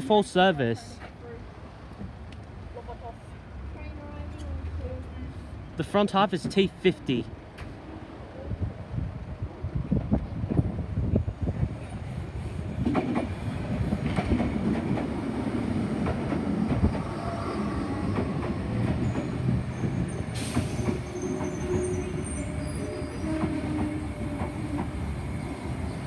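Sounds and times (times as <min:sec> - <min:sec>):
train rumbling: 0:03.0 - 0:26.0
faint brake squeal: 0:19.7 - 0:24.2
air brake hiss: 0:20.3 - 0:21.0.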